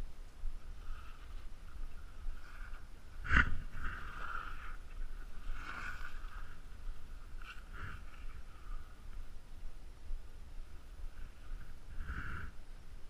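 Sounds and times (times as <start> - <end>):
wind rumbling on microphone: 0.0 - 13.0
swishes of movement in snow: 0.7 - 9.1.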